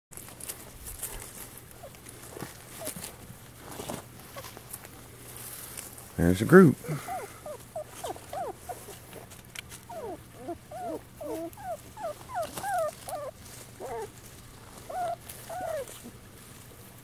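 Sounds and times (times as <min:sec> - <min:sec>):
puppies whimpering and squeaking: 0:01.0 - 0:03.1, 0:06.8 - 0:16.1.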